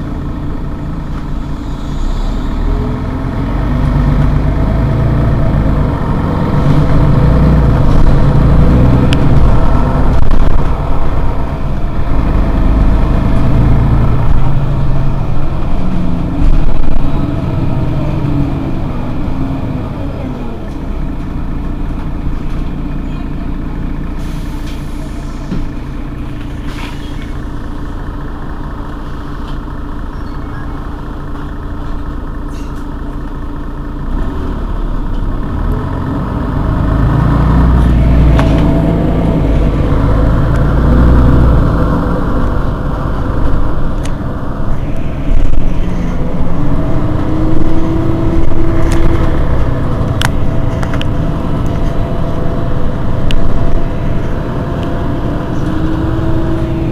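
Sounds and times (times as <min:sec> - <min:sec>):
bus diesel engine idling: 0:00.0 - 0:56.9
whine rising in pitch: 0:37.0 - 0:56.9.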